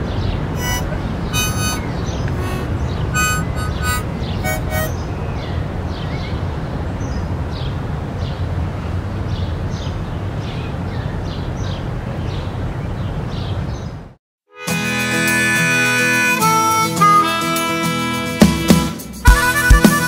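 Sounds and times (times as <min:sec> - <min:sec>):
small birds chirping: 0:00.0 - 0:08.4.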